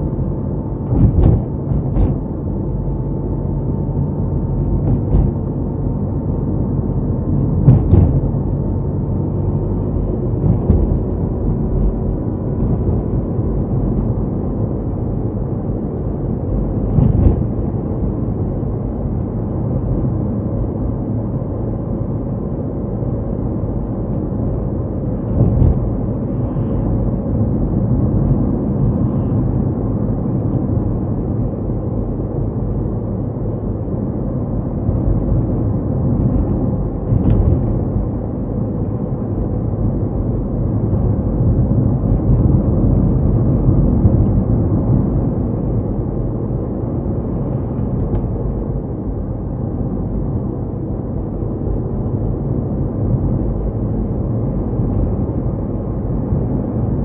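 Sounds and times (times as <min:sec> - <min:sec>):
car engine and tyres on road: 0:00.0 - 0:57.0
car thumps: 0:00.8 - 0:02.3, 0:04.8 - 0:05.5, 0:07.6 - 0:08.5, 0:10.4 - 0:11.4, 0:16.9 - 0:17.6, 0:25.3 - 0:26.0.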